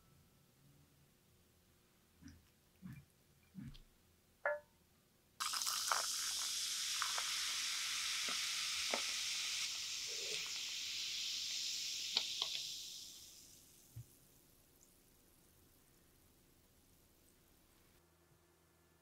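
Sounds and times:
ice cracking and popping: 5.4s - 7.3s
cola fizzing in a glass: 5.4s - 15.0s.

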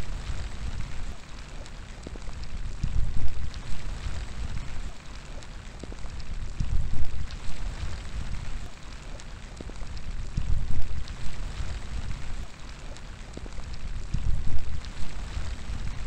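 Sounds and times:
raindrops striking close by: 0.0s - 16.0s
steady rain falling: 0.0s - 16.0s
wind gusts rumbling: 0.0s - 16.0s.

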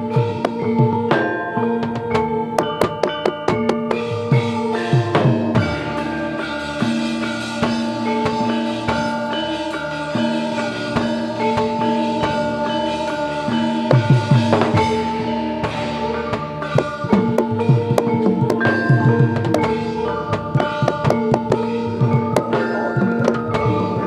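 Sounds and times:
drum strokes: 0.0s - 24.0s
metallophones ringing: 0.0s - 24.0s.

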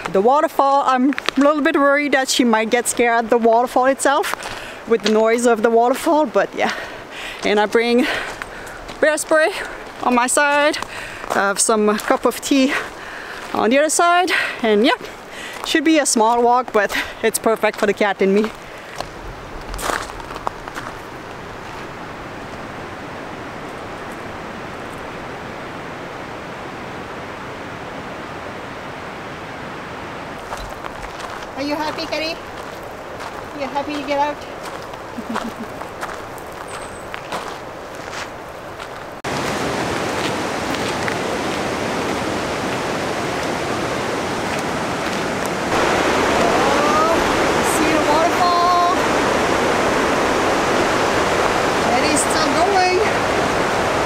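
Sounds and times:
footsteps on gravel: 0.0s - 14.2s, 15.0s - 22.0s, 30.4s - 49.3s
rushing water: 0.0s - 54.0s
waterfall rushing: 39.2s - 54.0s.

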